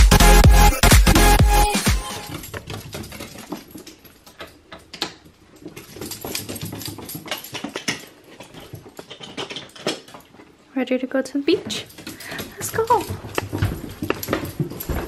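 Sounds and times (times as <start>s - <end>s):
dog claws clicking on wooden stairs: 2.3s - 10.6s, 11.6s - 15.0s.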